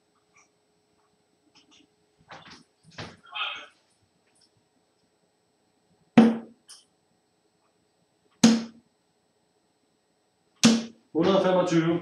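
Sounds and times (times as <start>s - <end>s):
darts thudding into dartboard: 6.2s - 6.6s, 8.4s - 8.8s, 10.6s - 11.4s.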